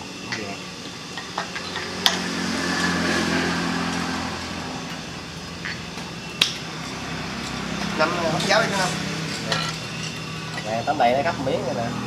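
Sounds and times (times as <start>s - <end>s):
engine humming: 0.0s - 12.0s
utensils clinking on bowls: 7.4s - 10.8s.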